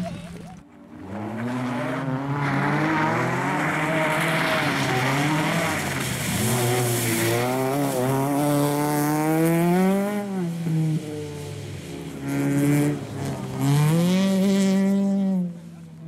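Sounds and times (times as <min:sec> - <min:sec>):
car engine accelerating hard: 0:00.9 - 0:16.0.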